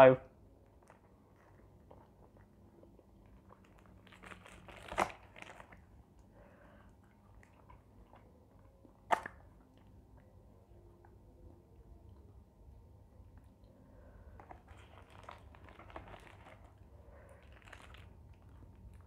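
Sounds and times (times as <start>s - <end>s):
paper wrapper crinkling: 3.2s - 5.9s, 14.4s - 19.0s.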